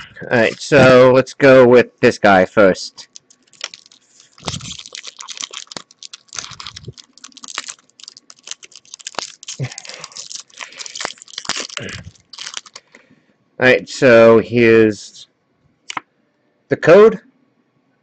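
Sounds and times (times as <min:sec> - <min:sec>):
foil wrapper crinkling: 0:00.4 - 0:00.9, 0:03.0 - 0:13.0.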